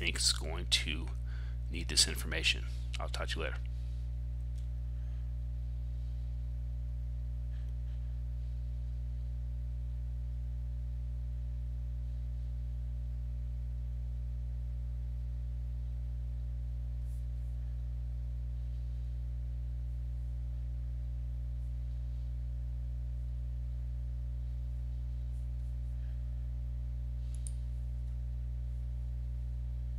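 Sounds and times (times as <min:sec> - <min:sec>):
low electrical hum: 0:00.0 - 0:29.9
faint mouse clicks: 0:27.3 - 0:27.6.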